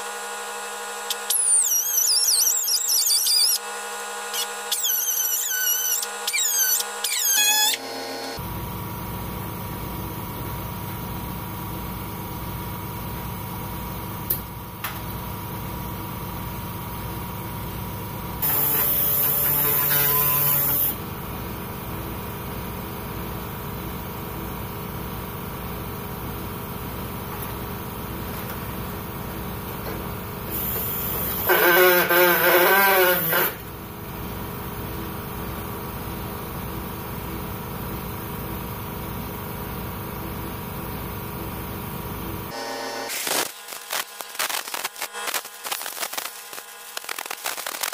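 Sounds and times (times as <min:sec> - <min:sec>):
steady mechanical hum: 0:00.0 - 0:47.8
pneumatic saw running: 0:00.8 - 0:08.4, 0:18.4 - 0:21.0, 0:30.5 - 0:33.7, 0:42.5 - 0:47.9.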